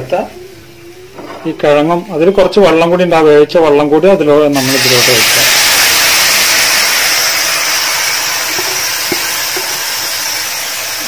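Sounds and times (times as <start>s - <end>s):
potatoes sizzling in a hot pan: 4.6s - 11.0s.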